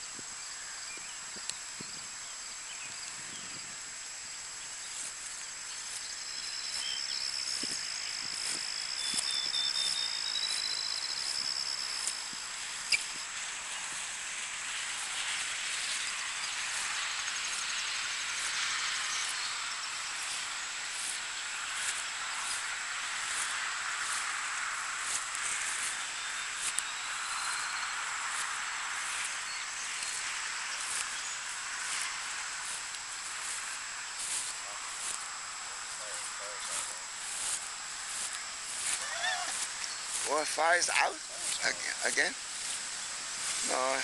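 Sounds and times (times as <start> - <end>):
steady hiss: 0.0 - 44.0
high thin trilling call: 4.8 - 24.3, 35.8 - 44.0.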